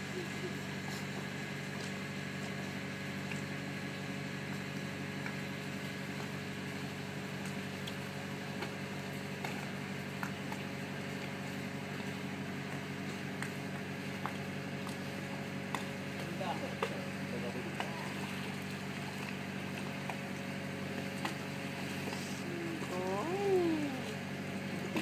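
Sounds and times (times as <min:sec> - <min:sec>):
machinery humming: 0:14.8 - 0:25.0.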